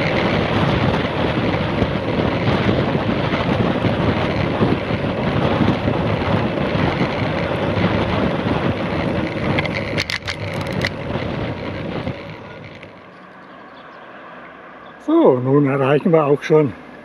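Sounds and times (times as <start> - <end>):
sharp clicks and rattles: 0.0 - 13.6
tyre road noise: 0.0 - 17.0
wind buffeting microphone: 0.0 - 17.0.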